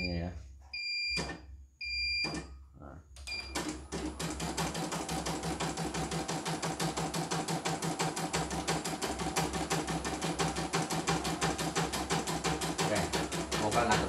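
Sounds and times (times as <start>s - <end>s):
embroidery machine stitching: 3.5s - 14.0s.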